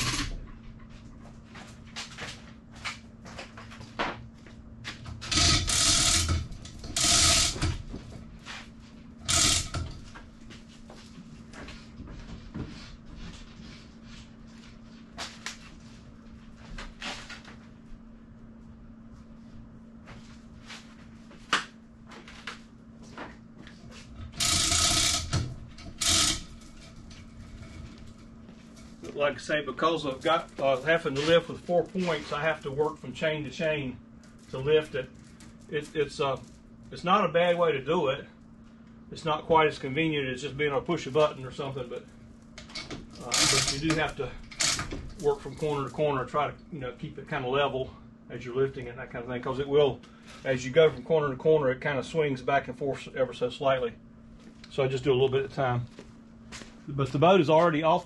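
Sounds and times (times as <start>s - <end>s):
chain hoist ratchet clicks: 0.0s - 0.3s, 5.3s - 7.6s, 9.3s - 9.8s, 24.4s - 26.5s, 43.2s - 44.8s
steady low hum: 0.0s - 58.0s.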